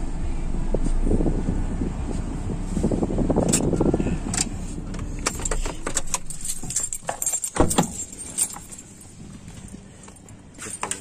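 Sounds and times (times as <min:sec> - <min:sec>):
low car rumble: 0:00.0 - 0:11.0
clicks rattles and rustles: 0:04.4 - 0:11.0.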